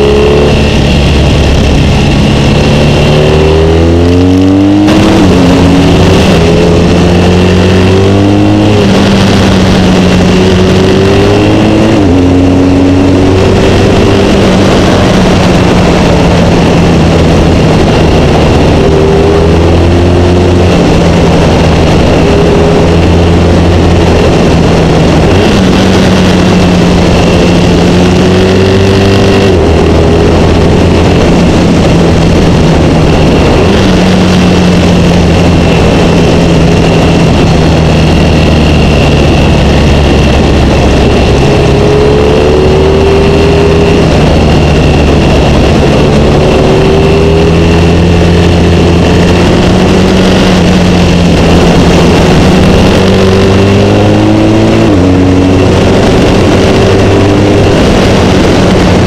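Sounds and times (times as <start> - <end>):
wind and road noise: 0.0 - 59.0.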